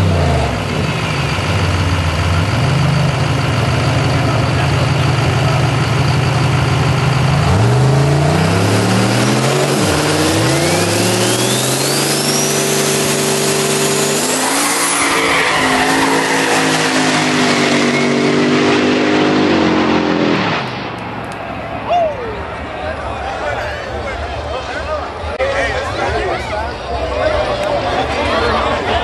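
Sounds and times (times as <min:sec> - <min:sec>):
pickup engine idling and revving: 0:00.0 - 0:21.3
tyres spinning and squealing: 0:00.6 - 0:18.4.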